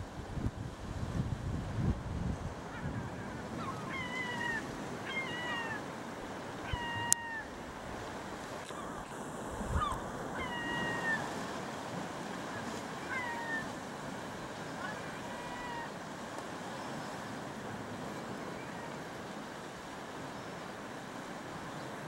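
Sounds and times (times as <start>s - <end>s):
gulls calling: 2.6s - 7.6s, 9.7s - 11.5s, 12.4s - 16.0s.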